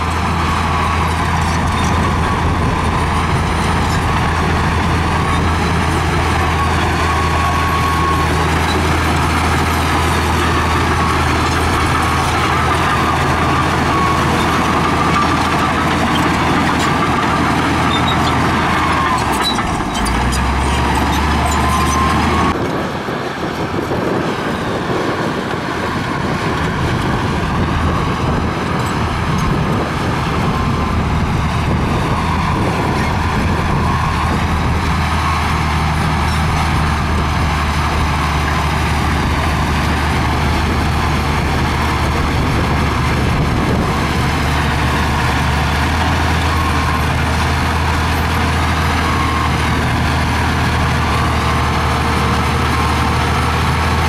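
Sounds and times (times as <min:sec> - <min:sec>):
bulldozer diesel engine under load: 0:00.0 - 0:54.0.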